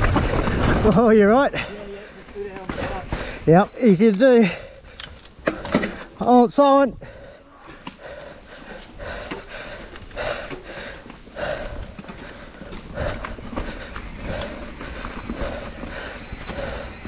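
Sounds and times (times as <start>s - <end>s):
tyres rumbling on dirt: 0.0s - 4.6s
bike clicks and rattles: 0.0s - 6.3s, 7.7s - 17.0s
person breathing hard: 7.0s - 17.0s.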